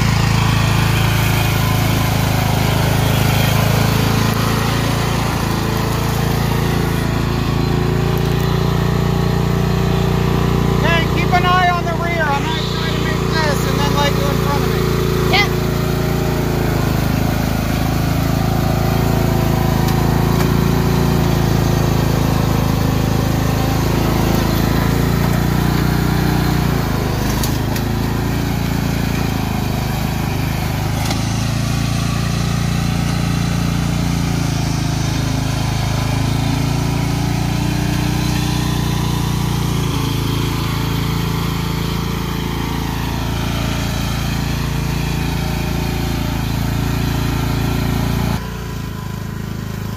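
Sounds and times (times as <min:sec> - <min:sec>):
lawn tractor engine running: 0:00.0 - 0:49.9.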